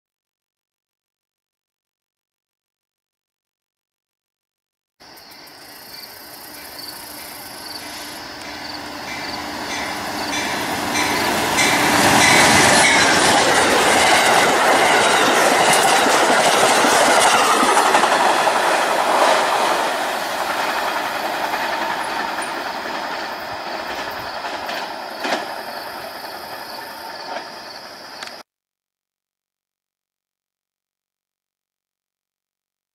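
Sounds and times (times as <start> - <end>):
passing train rumble and wheel clatter: 5.1 - 28.4.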